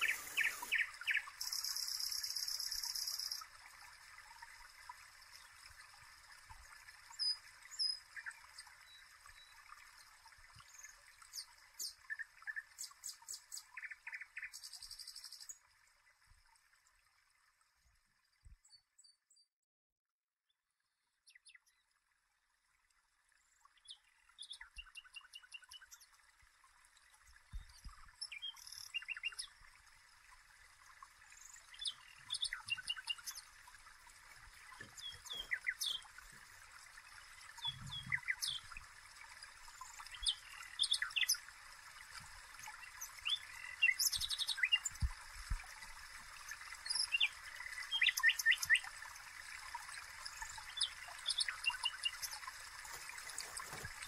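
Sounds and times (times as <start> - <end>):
birds chirping and singing: 0.0 - 1.8
soft steady hiss: 0.0 - 18.6, 22.0 - 54.0.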